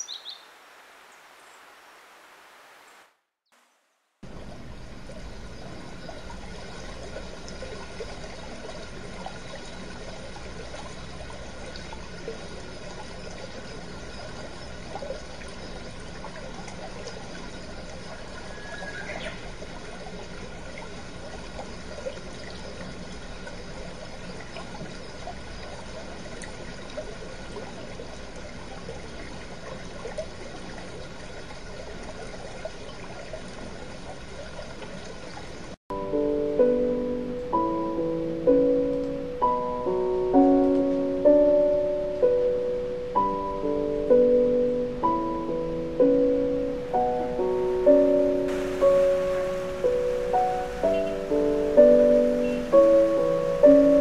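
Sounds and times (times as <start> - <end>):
stream rushing over boulders: 0.0 - 3.2, 46.6 - 54.0.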